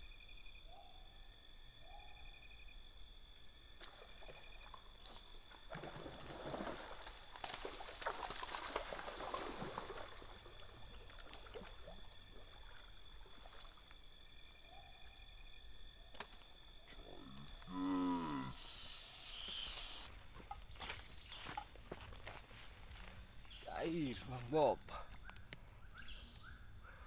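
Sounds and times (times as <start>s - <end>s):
fish thrashing and splashing: 5.6s - 13.9s.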